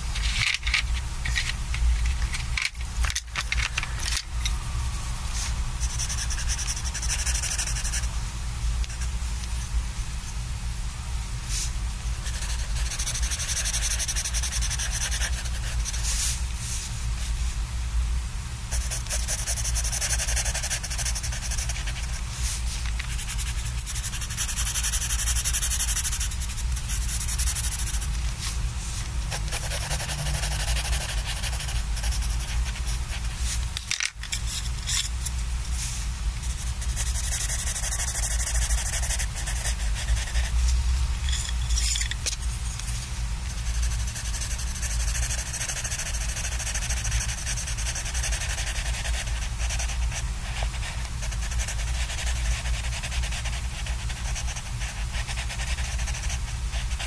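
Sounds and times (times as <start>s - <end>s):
pencil scratching on paper: 5.8s - 8.1s, 12.2s - 16.2s, 18.7s - 22.2s, 23.1s - 28.1s, 29.3s - 33.5s, 36.4s - 40.6s, 43.5s - 57.0s.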